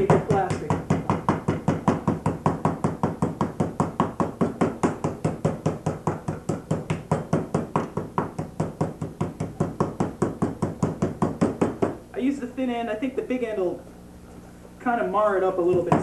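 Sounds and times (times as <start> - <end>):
meat pounded on wooden board: 0.0 - 12.0.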